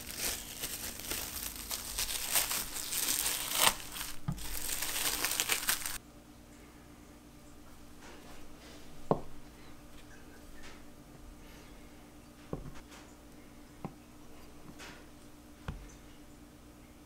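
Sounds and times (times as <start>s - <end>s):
rustling of dough and hands: 0.0s - 6.0s
faint steady hum: 0.0s - 17.0s.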